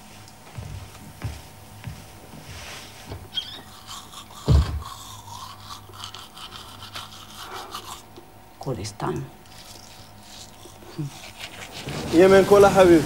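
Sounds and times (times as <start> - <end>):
scraping and rubbing: 9.5 - 13.0.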